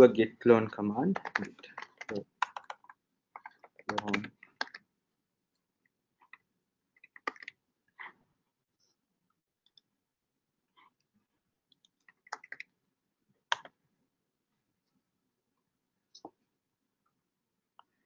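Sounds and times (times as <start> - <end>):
keyboard and mouse clicks: 1.0 - 4.8, 7.0 - 8.1, 11.8 - 12.7, 13.5 - 13.8.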